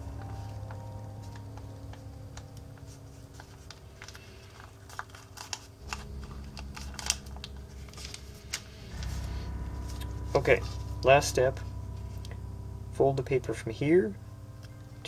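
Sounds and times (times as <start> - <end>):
paper crinkling and creasing: 0.0 - 11.1.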